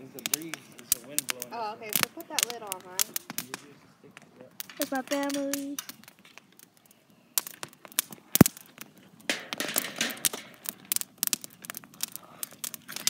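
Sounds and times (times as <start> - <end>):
fire crackling and popping: 0.0 - 13.0.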